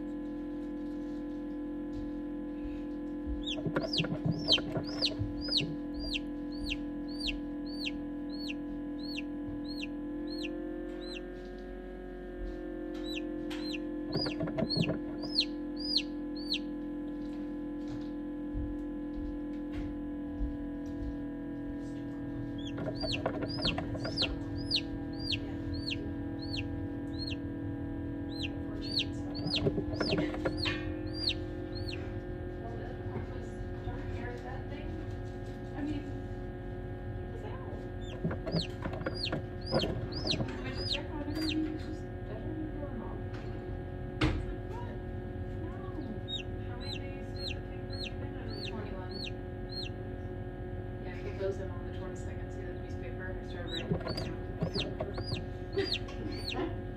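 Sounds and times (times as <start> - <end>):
chick peeping: 3.4 - 11.2, 13.0 - 16.7, 22.6 - 27.4, 28.3 - 32.0, 38.0 - 41.6, 46.3 - 49.9, 53.7 - 56.6.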